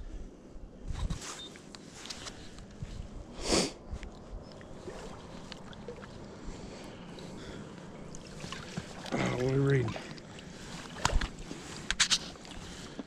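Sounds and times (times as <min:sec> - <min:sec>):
wind on microphone: 0:00.0 - 0:01.2
shallow water lapping: 0:04.0 - 0:13.0
fish splashing: 0:04.8 - 0:06.3, 0:08.0 - 0:11.6.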